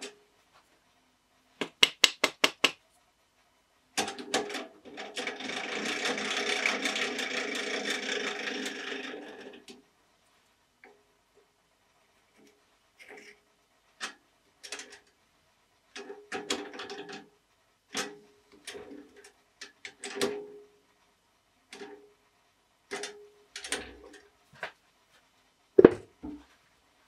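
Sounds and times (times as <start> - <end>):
hands clattering at wood lathe: 1.6 - 2.8, 25.8 - 26.5
tool rest knock: 25.8 - 26.4.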